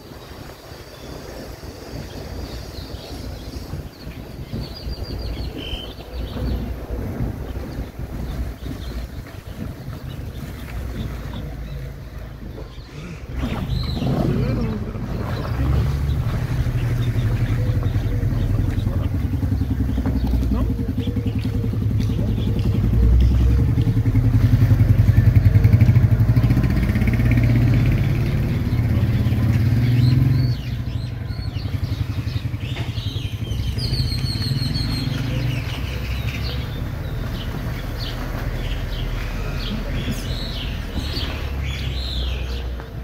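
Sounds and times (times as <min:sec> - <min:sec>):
birds chirping: 0:00.0 - 0:43.0
motorcycle engine running: 0:13.8 - 0:38.8.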